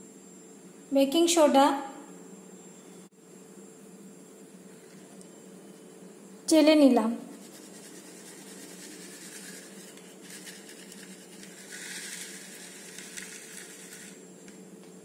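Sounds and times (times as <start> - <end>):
flour sifting rustle: 7.3 - 14.3.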